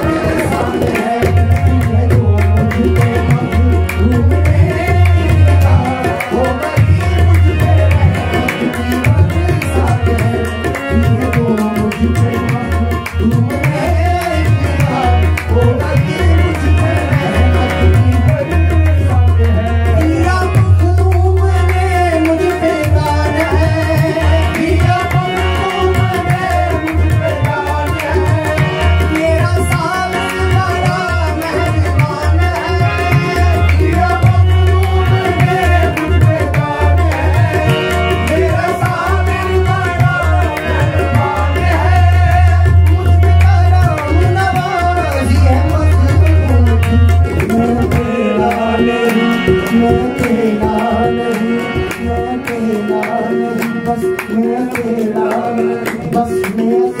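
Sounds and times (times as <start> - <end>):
tabla drumming: 0.0 - 57.0.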